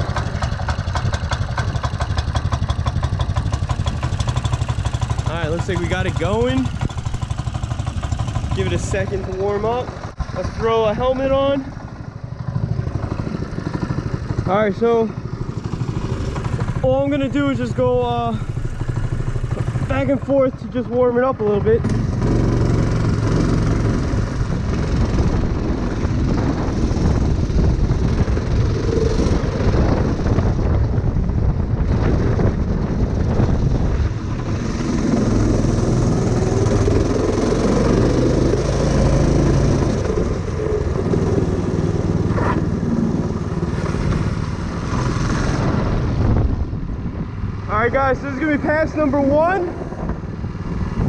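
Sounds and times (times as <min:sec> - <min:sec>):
go-kart engine running: 0:00.0 - 0:51.0.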